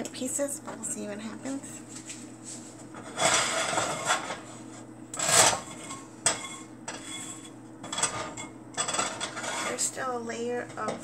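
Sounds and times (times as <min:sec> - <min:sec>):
plastic spatula scraping a pan: 0:09.1 - 0:09.9.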